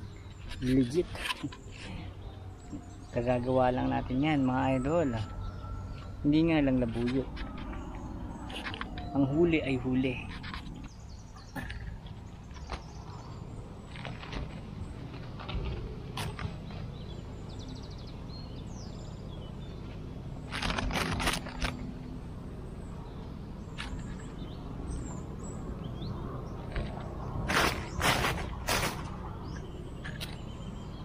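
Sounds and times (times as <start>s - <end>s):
dry leaves and twigs rustling: 0.1s - 17.2s, 19.7s - 22.1s, 26.6s - 30.7s
twigs snapping: 20.5s - 21.8s.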